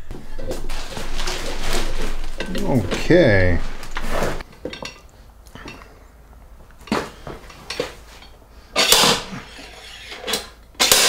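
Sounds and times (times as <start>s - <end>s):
metal clanks and knocks: 0.1s - 3.2s.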